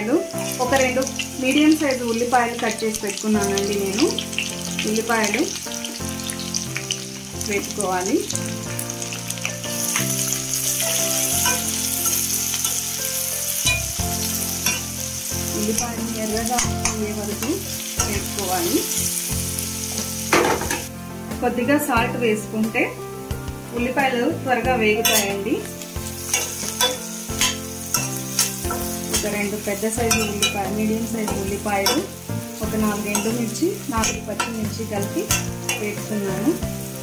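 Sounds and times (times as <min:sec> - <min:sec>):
onions sizzling in hot oil: 0:00.0 - 0:37.0
metal spoon scraping pan: 0:14.6 - 0:15.0, 0:25.0 - 0:25.4, 0:26.3 - 0:32.2, 0:32.9 - 0:36.0.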